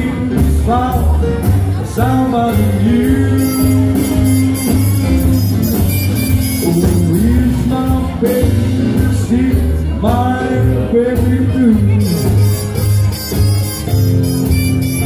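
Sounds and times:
drums: 0:00.0 - 0:15.0
jump blues band playing live: 0:00.0 - 0:15.0
walking bass: 0:00.0 - 0:15.0
lead melody bending in pitch: 0:02.5 - 0:08.6, 0:11.5 - 0:15.0.

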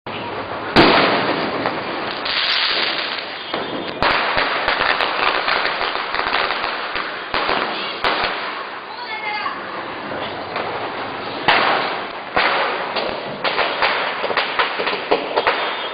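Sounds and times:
firecrackers crackling: 0:00.1 - 0:15.9
firecracker bangs: 0:00.7 - 0:08.8, 0:11.4 - 0:15.9.

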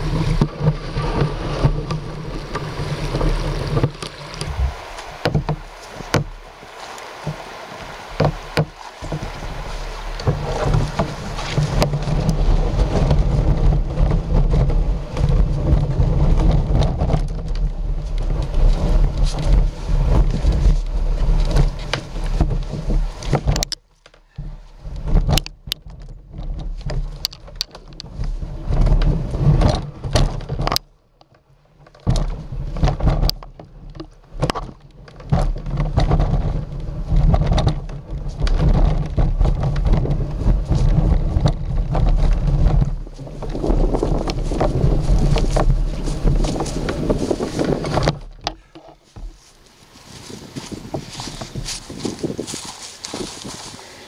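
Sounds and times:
kayak scraping over ground: 0:00.0 - 0:54.0.

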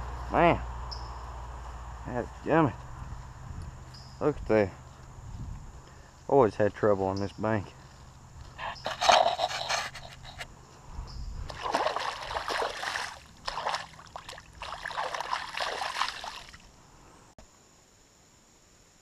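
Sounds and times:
river water splashing by hand: 0:11.5 - 0:16.7.

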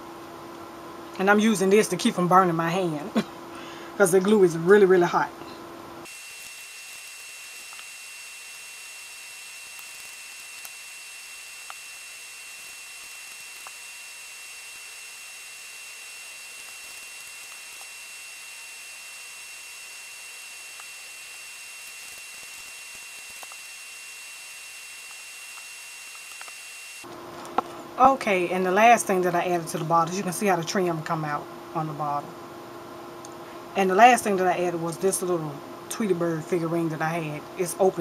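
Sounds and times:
electronic hiss: 0:06.0 - 0:27.1.

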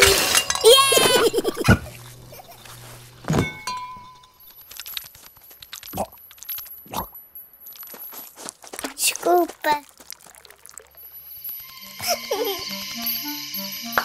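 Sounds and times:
glassy chime: 0:00.0 - 0:05.0, 0:10.2 - 0:14.0
high-pitched ringing tone: 0:10.8 - 0:14.0.

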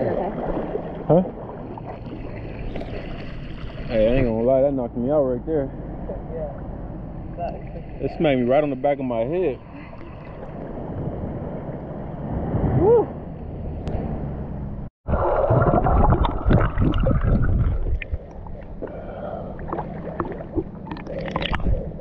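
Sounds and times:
muffled underwater churning and bubbling: 0:00.0 - 0:04.4, 0:15.1 - 0:22.0
seawater sloshing and rushing: 0:00.0 - 0:04.6, 0:09.4 - 0:13.9, 0:15.1 - 0:22.0
water lapping: 0:00.0 - 0:04.8, 0:15.1 - 0:22.0.

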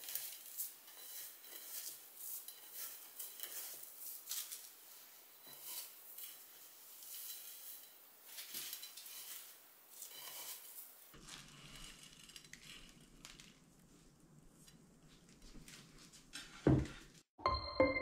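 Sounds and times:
utensils clinking on cookware: 0:00.0 - 0:10.8.

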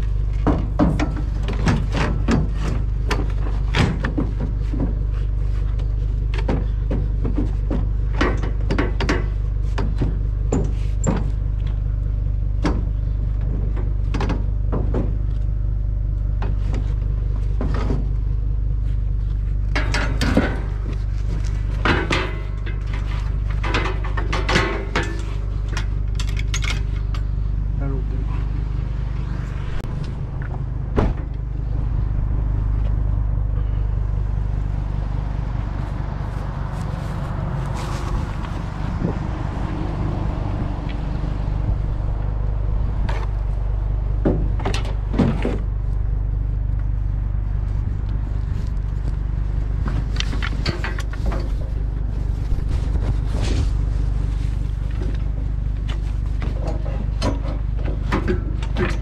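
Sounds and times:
truck engine idling: 0:00.0 - 0:59.0
scrap metal clattering: 0:19.5 - 0:27.1.

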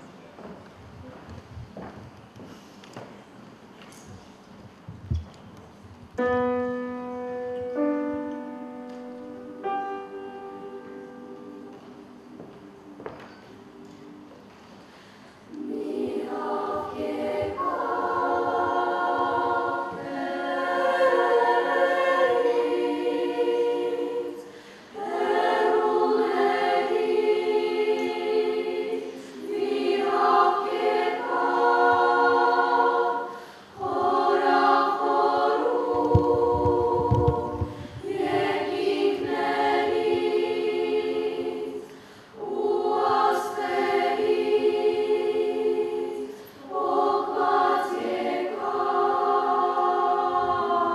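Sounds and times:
children's choir singing: 0:06.3 - 0:50.9.

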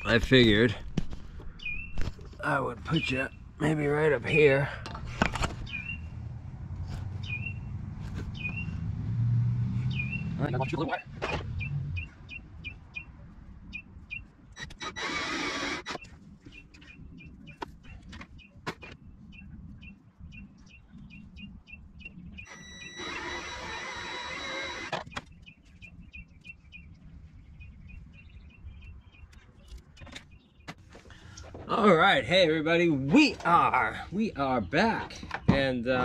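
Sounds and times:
bird chirping: 0:01.4 - 0:04.5, 0:05.6 - 0:06.2, 0:07.2 - 0:08.8, 0:09.8 - 0:31.4
wire-stripping machine whirring: 0:14.6 - 0:16.1, 0:22.4 - 0:25.2.

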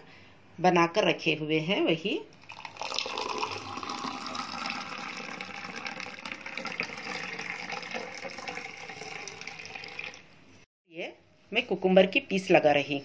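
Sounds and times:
juice pouring into glass: 0:02.4 - 0:10.3.

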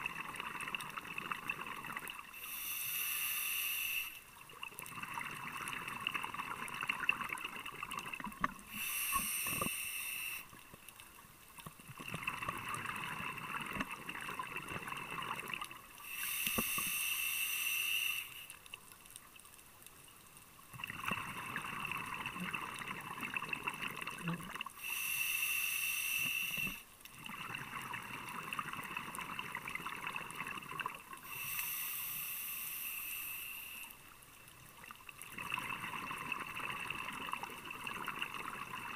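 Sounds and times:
diver inhaling through regulator: 0:02.3 - 0:04.2, 0:08.6 - 0:10.6, 0:16.0 - 0:18.6, 0:24.8 - 0:26.9, 0:31.2 - 0:34.0.

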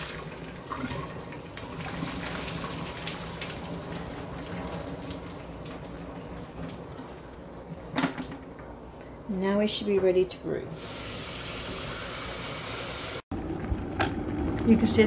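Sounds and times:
water splashing into metal sink: 0:00.0 - 0:06.8.

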